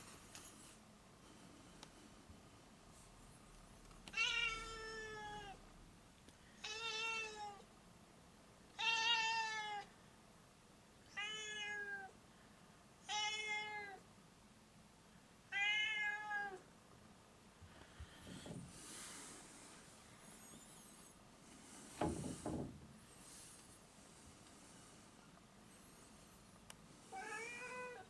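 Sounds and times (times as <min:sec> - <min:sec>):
cat meowing: 0:04.1 - 0:05.6, 0:06.6 - 0:07.6, 0:08.8 - 0:09.9, 0:11.1 - 0:12.1, 0:13.0 - 0:14.0, 0:15.5 - 0:16.6, 0:27.1 - 0:28.0.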